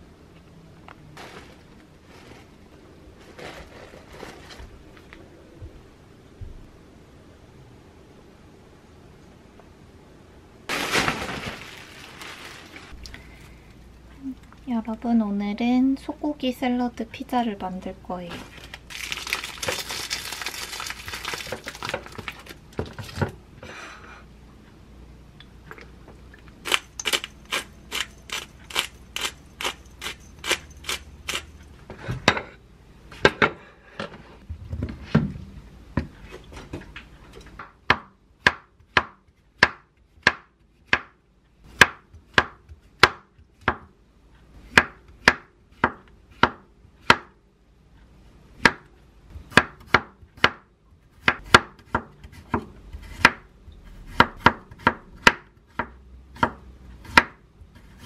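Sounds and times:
plastic packaging crinkling: 10.7s - 13.1s, 18.4s - 22.7s
knife chopping on wooden board: 49.5s - 50.6s, 51.2s - 58.0s.

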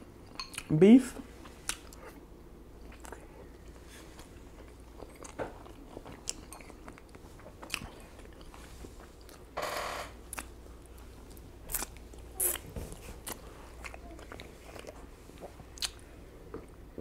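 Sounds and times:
close chewing and biting food: 2.8s - 9.5s, 10.3s - 16.8s.

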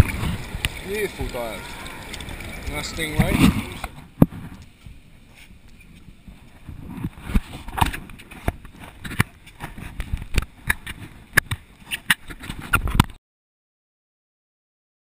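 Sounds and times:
low rumbling: 0.0s - 5.3s.

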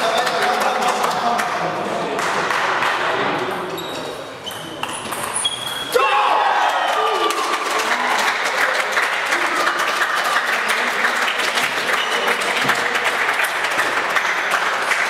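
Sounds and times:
spectators applauding: 0.0s - 1.5s, 6.3s - 15.0s.

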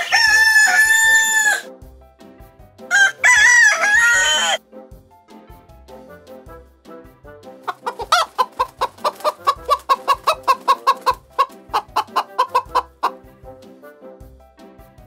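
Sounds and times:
chicken clucking: 0.0s - 1.7s, 2.9s - 4.6s, 7.6s - 13.2s
chicken squawk: 0.0s - 1.7s, 2.9s - 4.6s, 7.6s - 13.2s
background music: 0.0s - 15.0s.

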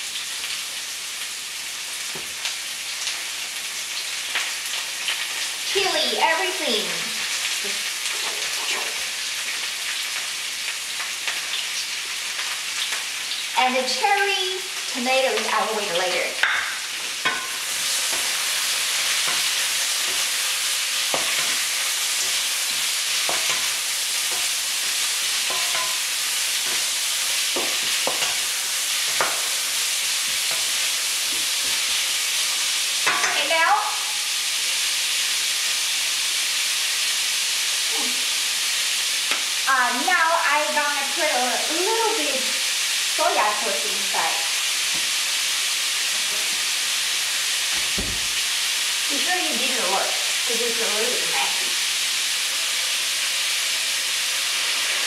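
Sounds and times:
vegetables sizzling in oil: 0.0s - 55.0s
spatula knocking against wok: 25.4s - 26.0s, 27.6s - 28.4s.

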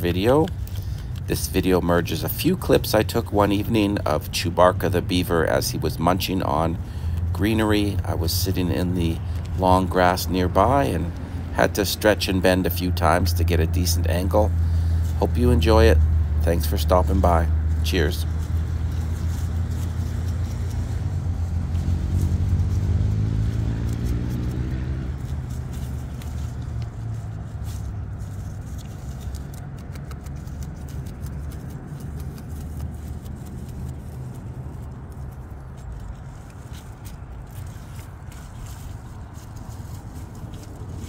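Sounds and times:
vehicle engine speeding up: 16.0s - 41.0s.

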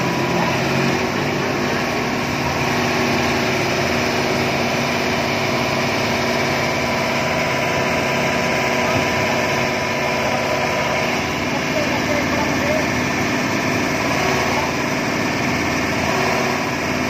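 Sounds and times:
excavator diesel engine running: 0.0s - 17.0s.

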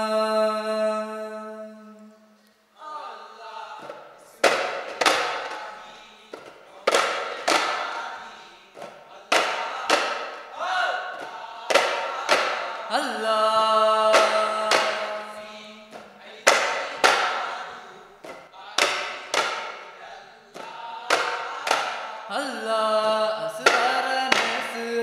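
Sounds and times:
person singing a long note: 0.0s - 2.4s, 12.9s - 15.9s
frame drums struck in unison: 3.8s - 5.8s.

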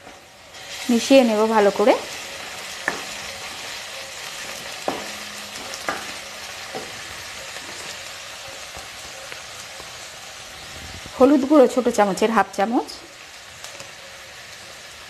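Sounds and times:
onion sizzling in oil: 0.0s - 15.0s
wooden spoon knocking on pan: 2.8s - 3.7s, 4.4s - 8.0s.

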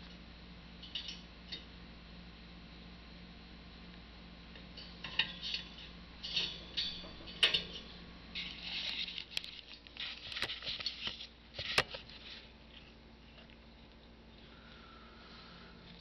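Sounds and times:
parrot crinkling paper: 8.4s - 14.0s.

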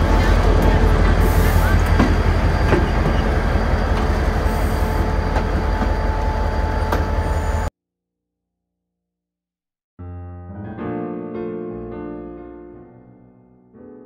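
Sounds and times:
locomotive idling rumble: 0.0s - 7.7s.

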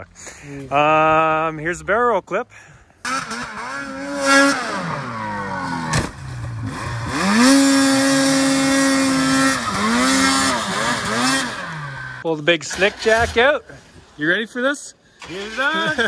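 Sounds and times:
snowmobile engine revving: 3.0s - 13.4s, 15.2s - 16.0s.

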